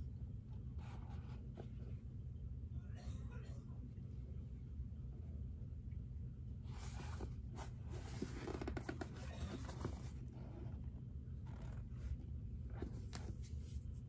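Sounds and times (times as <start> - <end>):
steady low hum: 0.0 - 14.0
leather boot rustling and scraping: 6.8 - 10.8.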